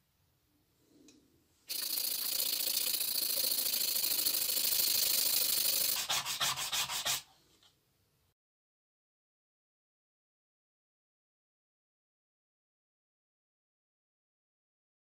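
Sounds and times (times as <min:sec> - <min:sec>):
sandpaper scratching on wood: 0:05.6 - 0:07.3.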